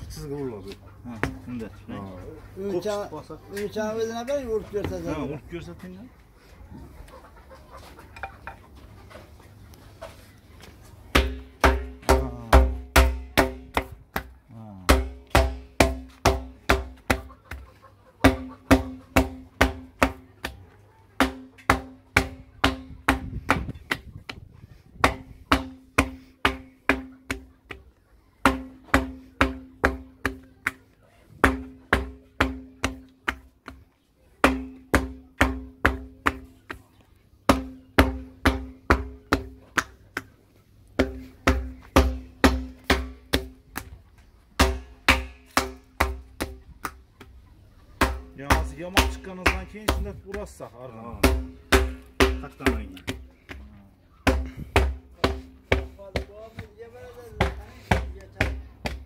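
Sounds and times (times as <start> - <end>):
wooden paddle knocking clay oven: 1.1 - 1.6, 11.1 - 17.6, 18.2 - 20.6, 21.2 - 36.9, 37.5 - 40.4, 41.0 - 47.4, 48.0 - 53.6, 54.2 - 59.0.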